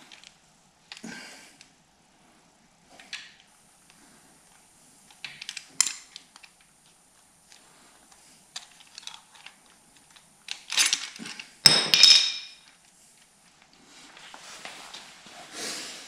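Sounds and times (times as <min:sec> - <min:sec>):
metal chains clinking and rattling: 0:10.7 - 0:12.7.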